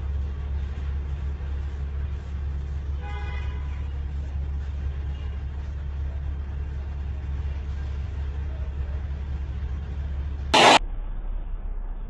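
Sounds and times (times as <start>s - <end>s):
low engine drone: 4.1s - 12.0s.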